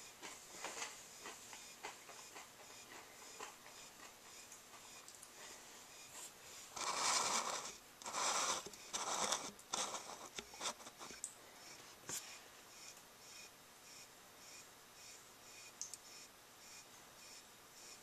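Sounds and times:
scratching on plastic container: 6.8s - 11.2s.

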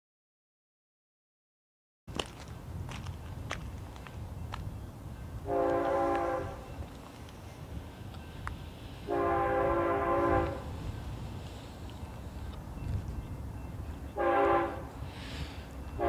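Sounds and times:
locomotive air horn blasts: 5.4s - 6.8s, 9.0s - 10.8s, 14.1s - 15.1s.

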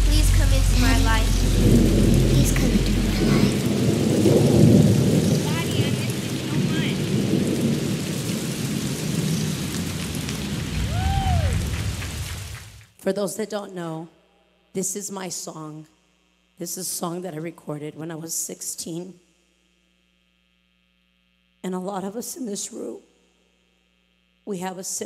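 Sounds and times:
audience applauding: 10.7s - 12.7s
person whooping: 10.9s - 11.7s
scattered voices cheering: 10.9s - 11.7s.

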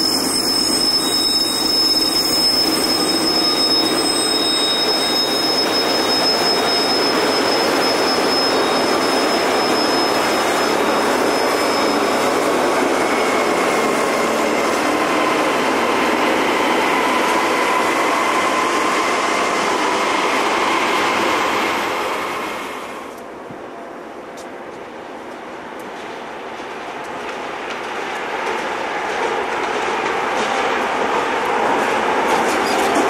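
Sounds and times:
high wheel squeal: 0.0s - 23.0s
freight train rolling past: 0.0s - 24.2s, 24.8s - 33.0s.

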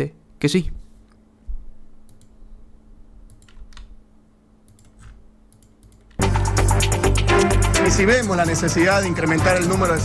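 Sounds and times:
man talking: 0.0s - 0.8s, 7.8s - 10.0s
faint computer clicks: 2.0s - 2.4s, 3.3s - 4.0s, 4.7s - 6.2s
music: 6.2s - 10.0s.

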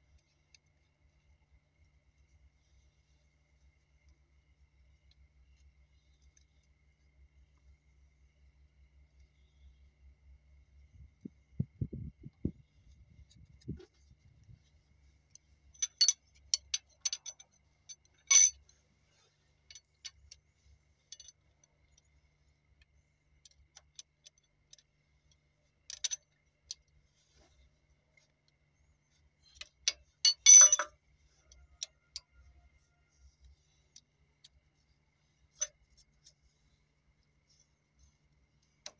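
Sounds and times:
hand tools clicking on metal: 15.8s - 18.6s.

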